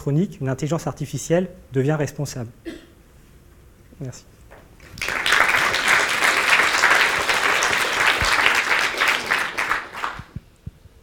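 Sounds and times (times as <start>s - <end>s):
audience applauding: 4.6s - 10.4s.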